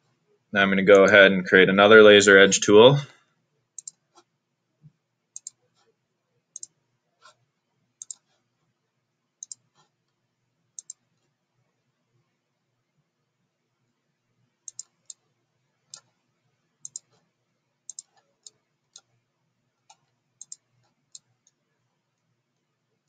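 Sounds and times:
computer mouse clicking: 0:03.8 - 0:04.3, 0:05.4 - 0:05.9, 0:06.5 - 0:07.4, 0:08.0 - 0:08.4, 0:09.4 - 0:09.9, 0:10.8 - 0:11.3, 0:14.7 - 0:15.2, 0:15.9 - 0:16.2, 0:16.8 - 0:17.3, 0:17.9 - 0:19.1, 0:19.8 - 0:21.6.

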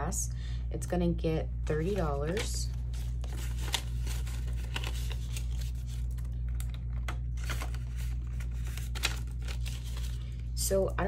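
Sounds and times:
steady low hum: 0:00.0 - 0:11.0
banknotes rustling: 0:01.7 - 0:10.4.

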